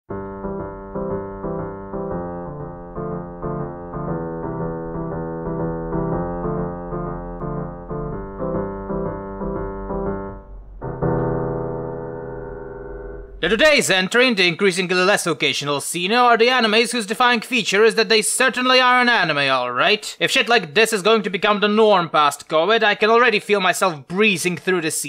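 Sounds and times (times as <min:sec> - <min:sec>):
piano notes and chords: 0:00.0 - 0:14.3.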